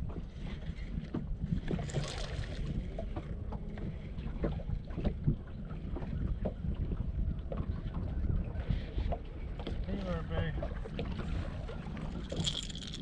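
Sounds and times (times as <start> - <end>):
wind rumbling on microphone: 0.0 - 13.0
water splashes: 1.6 - 5.8.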